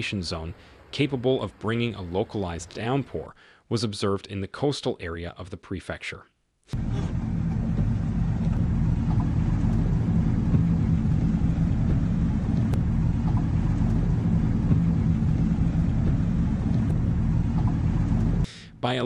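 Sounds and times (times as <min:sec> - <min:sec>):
floodwater and rain on road: 0:06.8 - 0:18.5
truck engine droning: 0:06.8 - 0:18.7.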